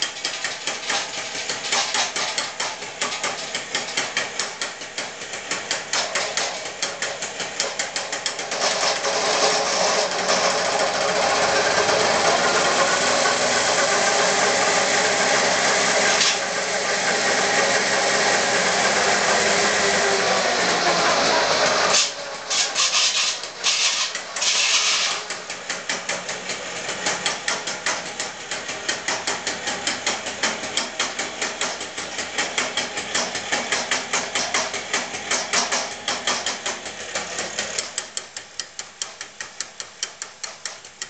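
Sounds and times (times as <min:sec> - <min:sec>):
rapid mechanical clicks: 0:00.0 - 0:11.1, 0:21.9 - 0:41.0
small mower engine running: 0:00.0 - 0:38.4
short bursts of hissing: 0:21.9 - 0:25.2.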